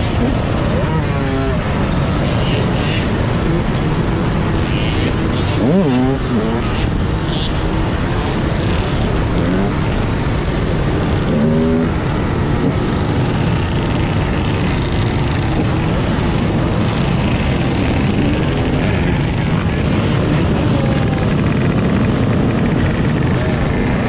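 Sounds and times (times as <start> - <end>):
dirt bike engine revving: 0.0 - 24.0
dirt bike engines droning: 0.0 - 24.0.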